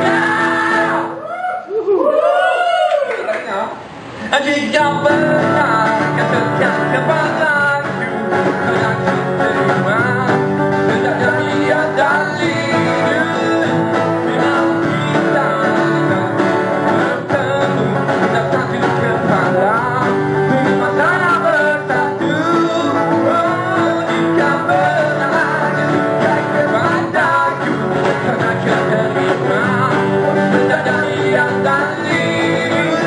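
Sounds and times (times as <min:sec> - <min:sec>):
cajon beat: 0:00.0 - 0:01.2, 0:04.2 - 0:33.0
strummed acoustic guitars: 0:00.0 - 0:01.2, 0:03.8 - 0:33.0
person singing: 0:00.0 - 0:02.7, 0:04.3 - 0:33.0.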